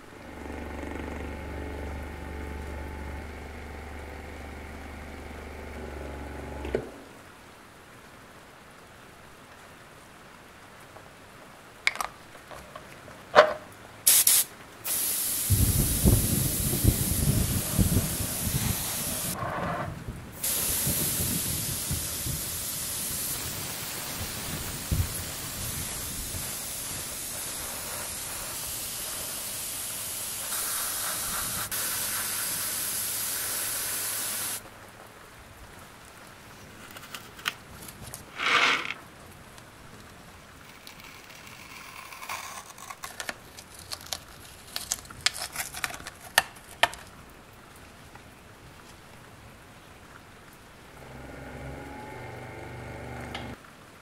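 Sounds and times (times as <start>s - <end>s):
airbrush spraying hiss: 14.1s - 19.4s, 20.4s - 34.6s.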